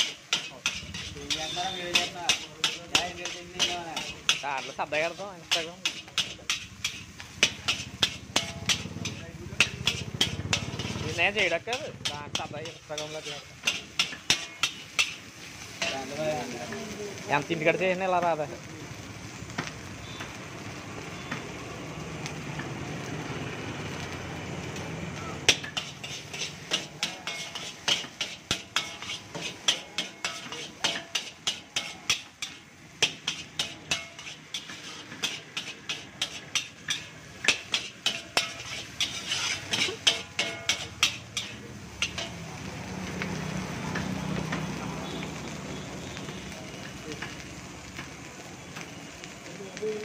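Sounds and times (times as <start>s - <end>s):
ladle clanging on wok: 0.0s - 16.2s, 25.4s - 42.5s.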